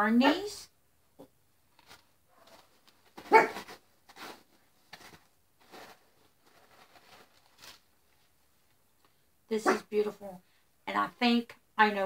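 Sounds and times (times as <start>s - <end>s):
dog barking: 2.3s - 3.6s, 9.6s - 9.9s.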